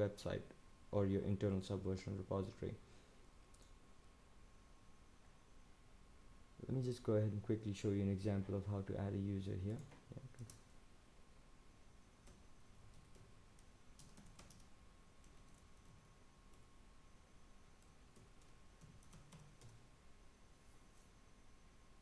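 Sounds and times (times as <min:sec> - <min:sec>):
low hiss: 0:00.0 - 0:22.0
keyboard typing: 0:12.2 - 0:16.7, 0:17.7 - 0:19.9.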